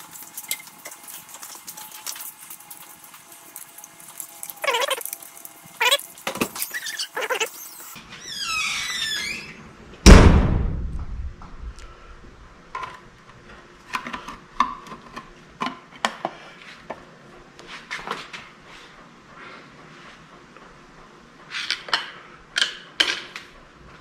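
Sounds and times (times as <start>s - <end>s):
wavering squeak: 6.6s - 9.6s
loud metallic clunk: 10.1s - 11.6s.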